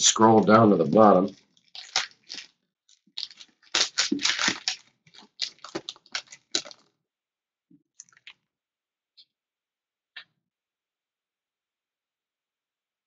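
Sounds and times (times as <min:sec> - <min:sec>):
foil wrapper crinkling: 0:00.5 - 0:06.9
cards clicking and tapping: 0:03.2 - 0:06.8.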